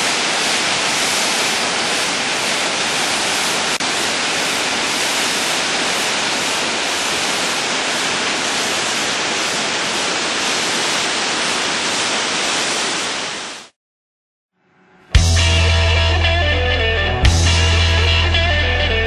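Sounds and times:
rushing creek water: 0.0 - 13.7.

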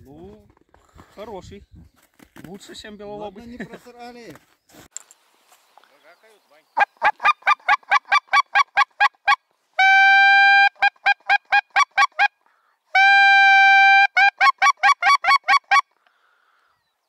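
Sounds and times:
goose call honk: 6.8 - 12.3, 13.0 - 15.8
goose call clucks: 6.8 - 12.4, 13.0 - 15.9.

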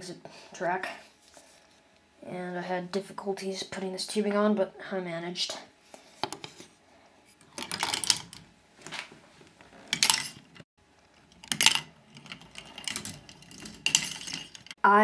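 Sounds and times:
plastic parts clicking and clattering: 7.4 - 9.1, 9.9 - 14.8.

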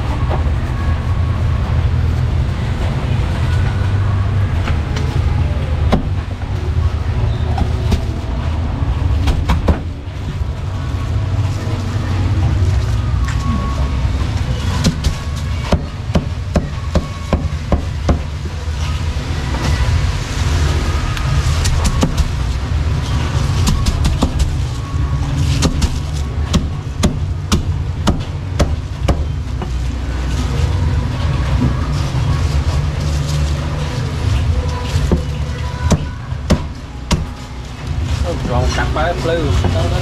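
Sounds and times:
low background rumble: 0.0 - 40.0.

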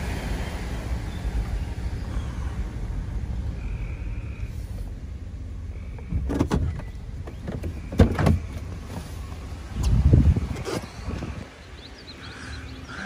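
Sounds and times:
truck engine rumble: 0.0 - 13.0
thumps and rubs in truck cab: 6.0 - 11.4.

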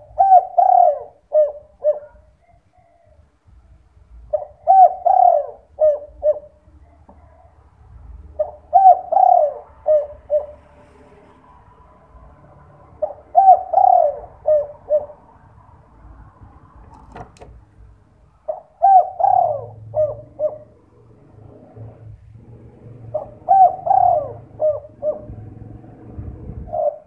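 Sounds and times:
dove cooing: 0.0 - 3.3, 4.2 - 10.9, 12.9 - 15.4, 18.4 - 27.0.

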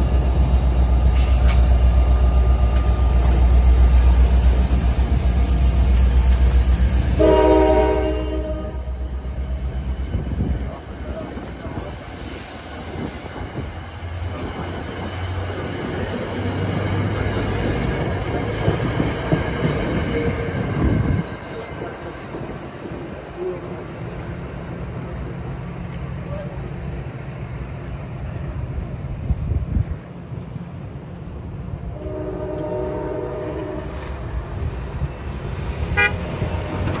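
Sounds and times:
train wheels rumbling on rails: 0.0 - 37.0
wind: 0.0 - 37.0
distant train horn: 7.1 - 9.2, 31.9 - 34.1, 35.9 - 36.8.

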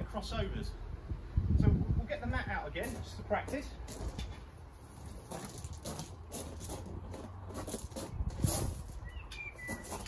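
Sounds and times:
footsteps crunching on gravel: 2.7 - 10.0
exercise mat rustling on gravel: 2.8 - 10.0.

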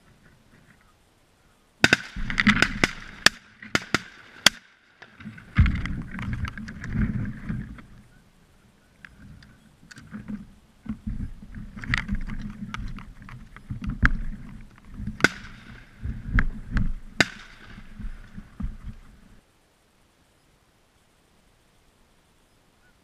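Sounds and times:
loud cracks with ringing: 1.8 - 6.2, 15.2 - 16.2, 17.1 - 18.6
wind buffeting microphone: 5.2 - 8.2, 9.0 - 19.4.

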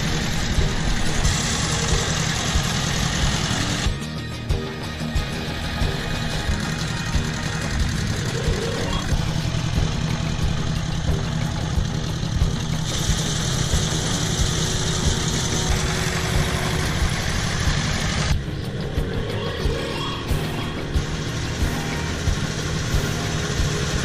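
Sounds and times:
walk-behind tractor engine running: 0.0 - 24.0
hiss: 12.8 - 18.3.

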